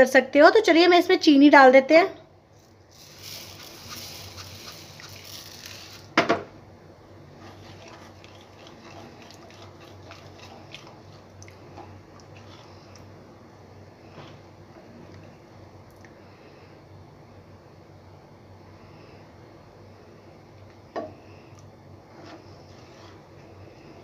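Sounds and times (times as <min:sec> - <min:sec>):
sugar pouring hiss: 0:02.6 - 0:06.2
wooden spatula stirring and scraping: 0:07.3 - 0:13.0, 0:22.0 - 0:23.9.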